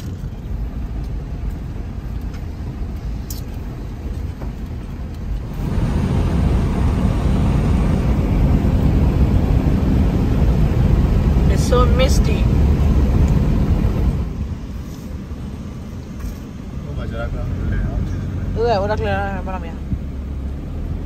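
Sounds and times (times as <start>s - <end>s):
vehicle driving rumble: 0.0s - 21.0s.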